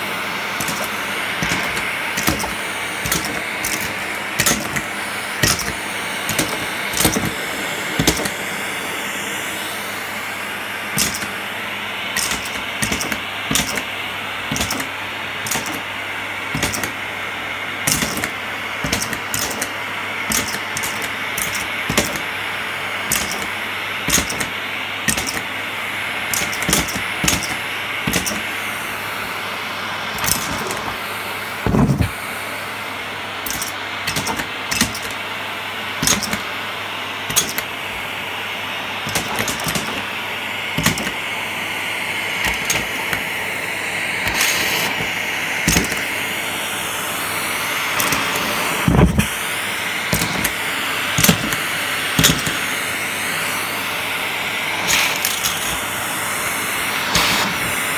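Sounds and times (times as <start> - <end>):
vacuum cleaner running on carpet: 0.0 - 57.9
sharp clicks and rattles: 0.6 - 8.5, 10.9 - 11.4, 12.2 - 13.9, 16.6 - 17.0, 17.9 - 22.3, 26.3 - 28.5, 33.5 - 35.2, 39.1 - 40.1.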